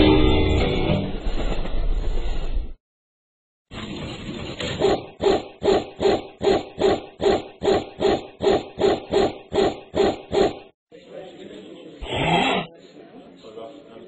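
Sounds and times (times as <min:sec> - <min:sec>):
dog barking: 0:04.8 - 0:10.7.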